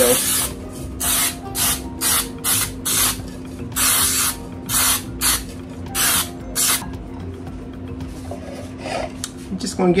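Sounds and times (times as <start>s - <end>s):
aerosol can spraying bursts: 0.1s - 3.2s, 3.8s - 5.4s, 6.0s - 6.8s.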